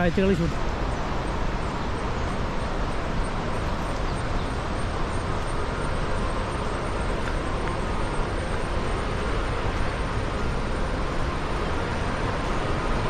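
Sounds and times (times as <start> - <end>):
outdoor rumble and hiss: 0.0 - 13.0.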